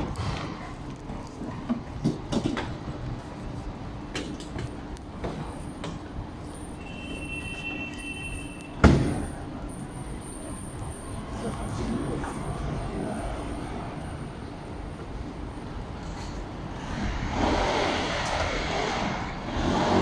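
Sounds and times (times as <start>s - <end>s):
street background noise: 0.0s - 20.0s
sharp loud knock: 8.8s - 9.3s.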